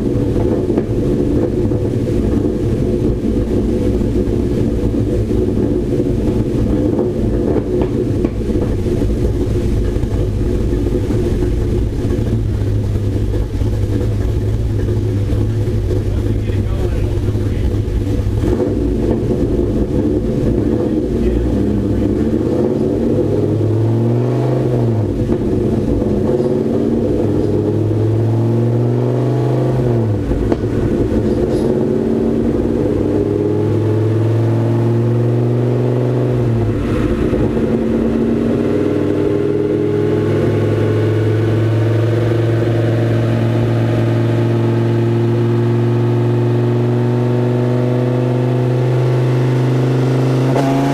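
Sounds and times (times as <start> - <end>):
wheels spinning on rollers: 0.0 - 23.6
engine revving under load: 0.0 - 50.9.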